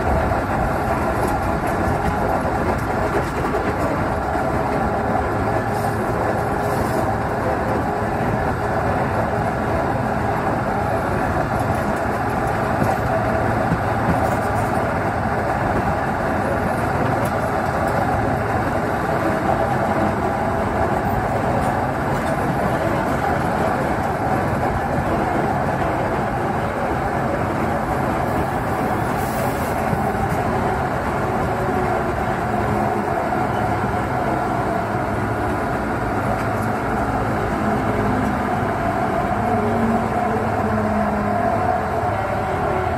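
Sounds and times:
locomotive engine drone: 0.0s - 42.9s
wheels rumbling on rails: 0.0s - 42.9s.

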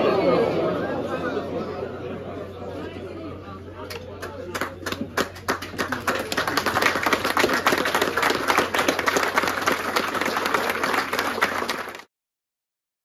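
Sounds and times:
people applauding: 4.2s - 12.1s.

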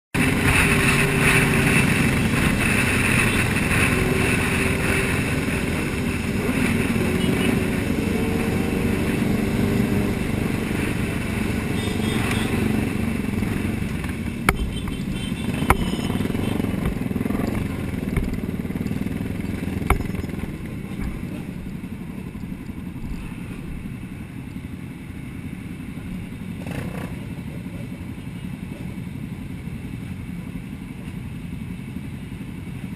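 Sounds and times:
motorcycles riding at speed: 0.2s - 32.9s
sharp knocks: 13.9s - 18.6s, 19.5s - 21.5s.

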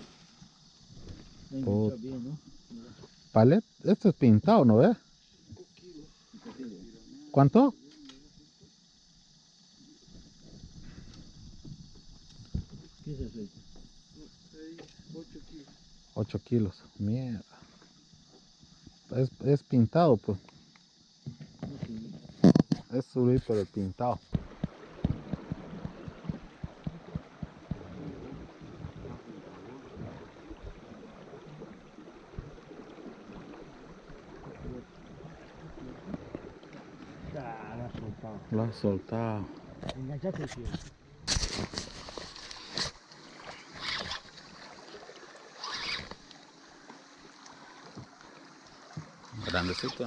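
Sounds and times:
water lapping against canoe hulls: 0.0s - 50.0s
low knocks against boat: 24.2s - 29.1s
river current rushing: 41.6s - 50.0s
short scratchy noises: 45.6s - 46.2s.

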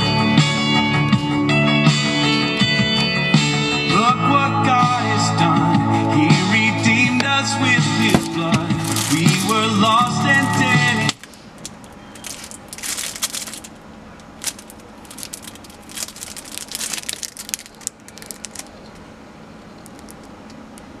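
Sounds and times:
plastic wrapping crinkling: 7.9s - 19.0s, 19.8s - 20.3s.

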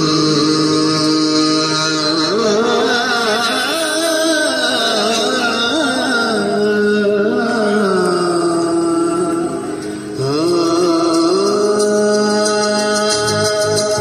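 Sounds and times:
man singing: 0.0s - 14.0s.

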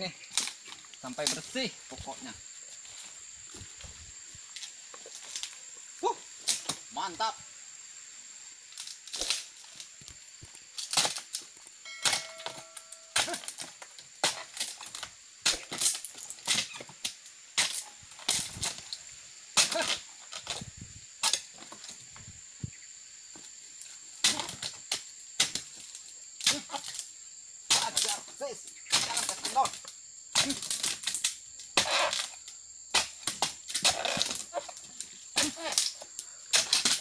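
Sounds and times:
chisel chopping palm fronds: 12.0s - 16.8s, 19.6s - 20.5s, 24.2s - 24.7s, 27.7s - 28.2s, 28.9s - 31.2s, 31.8s - 32.3s, 32.9s - 34.6s, 35.4s - 37.0s.

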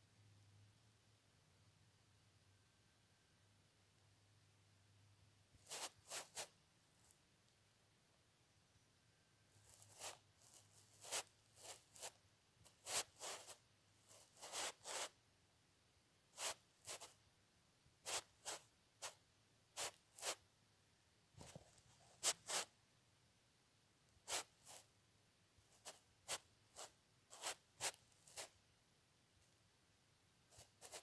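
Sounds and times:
pen scratching on paper: 5.6s - 6.5s, 9.6s - 15.2s, 16.4s - 17.1s, 18.0s - 19.2s, 19.8s - 20.4s, 21.4s - 22.7s, 24.2s - 24.9s, 25.7s - 28.6s, 30.5s - 31.0s.

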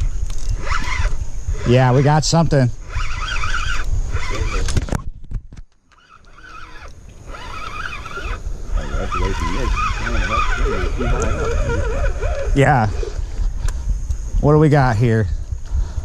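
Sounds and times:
fishing reel gears whirring: 0.0s - 4.8s, 5.9s - 14.7s
steady low rumble: 7.9s - 16.0s.

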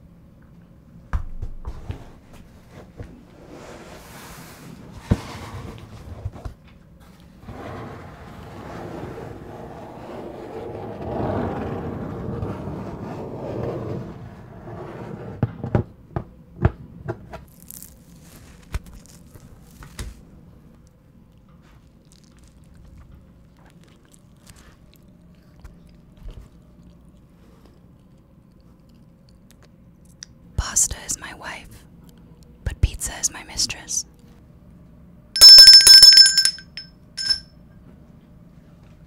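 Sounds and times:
soft cardboard crackles: 17.5s - 20.2s.

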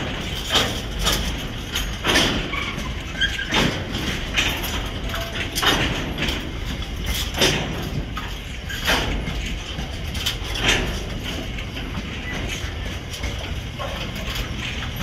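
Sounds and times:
train wheels rumbling on rails: 0.0s - 15.0s
wheels clacking over rail joints: 0.0s - 15.0s.

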